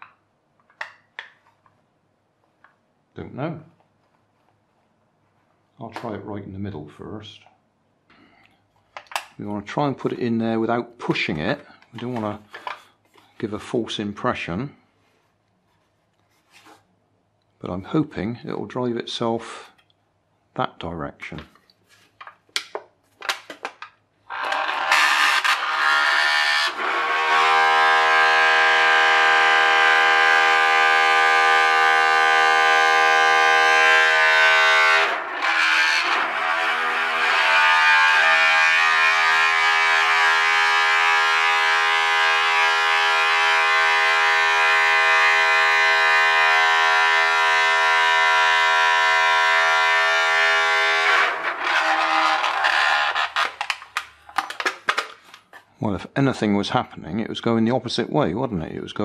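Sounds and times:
toothbrush motor buzzing in foil tray: 24.3s - 53.8s.

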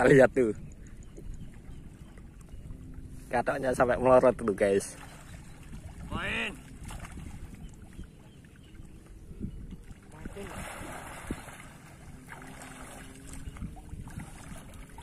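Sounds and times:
wind rumble on microphone: 0.0s - 15.0s
pond water splashing: 4.1s - 15.0s.

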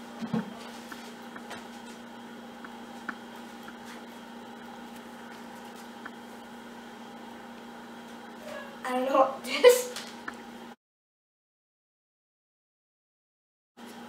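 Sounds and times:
electrical hum: 0.0s - 10.8s.

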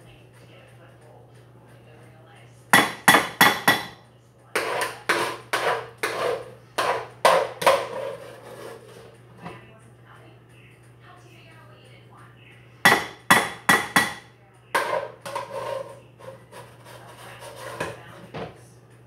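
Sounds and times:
spoon knocking against pot: 2.8s - 4.0s, 4.6s - 8.1s, 12.9s - 15.8s.

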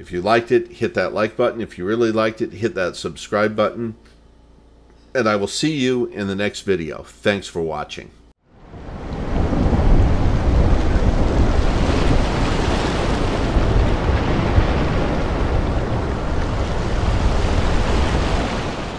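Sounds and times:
rushing noise with deep rumble: 8.6s - 18.9s.

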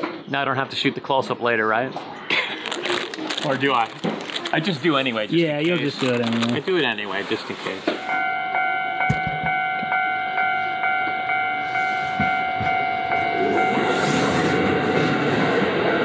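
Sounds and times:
train passing: 6.5s - 16.0s
level-crossing bell clanging: 8.0s - 15.7s.

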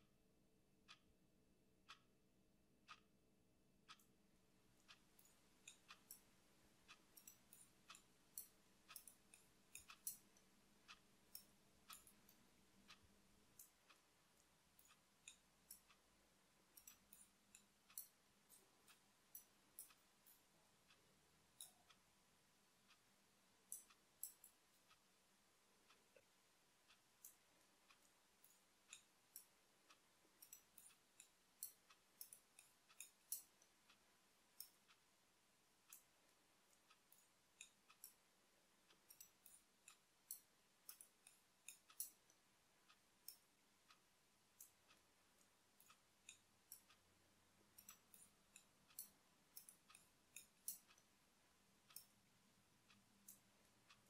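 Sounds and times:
knitting needles clicking: 3.9s - 4.1s, 4.7s - 54.0s.

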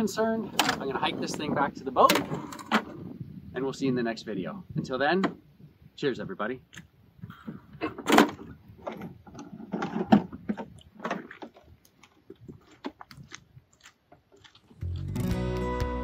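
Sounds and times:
footsteps on rocky ground: 10.3s - 15.3s
guitar music: 14.8s - 16.0s.

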